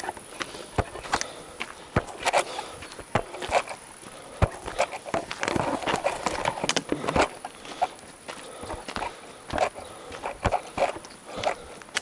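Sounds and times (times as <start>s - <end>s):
footsteps on gravel: 0.0s - 12.0s.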